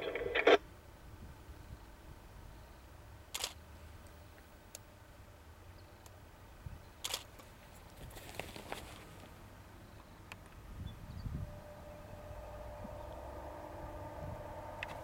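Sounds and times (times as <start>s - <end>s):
sharp clicks: 3.3s - 3.6s
distant diesel locomotive rumble: 8.6s - 15.0s.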